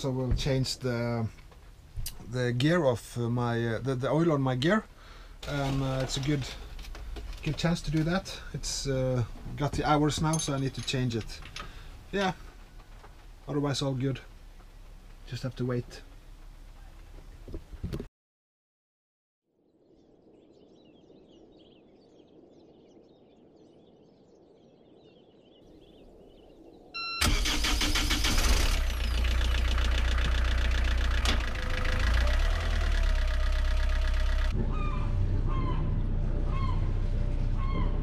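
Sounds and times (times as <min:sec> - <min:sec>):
faint high chirps: 0:20.3 - 0:27.2
short beep: 0:27.0 - 0:27.3
diesel engine running: 0:27.2 - 0:37.6.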